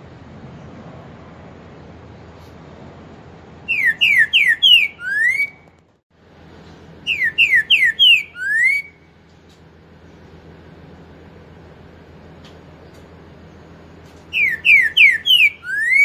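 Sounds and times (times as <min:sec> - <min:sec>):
bird singing whistled song: 0:03.7 - 0:05.7, 0:07.0 - 0:09.1, 0:14.3 - 0:16.0.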